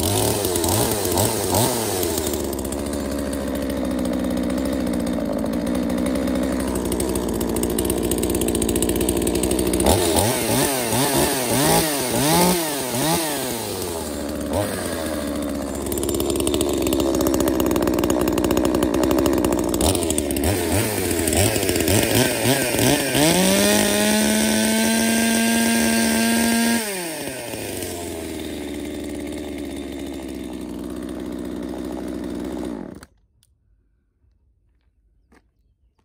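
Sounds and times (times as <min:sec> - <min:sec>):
chainsaw revving and idling: 0:00.0 - 0:33.2.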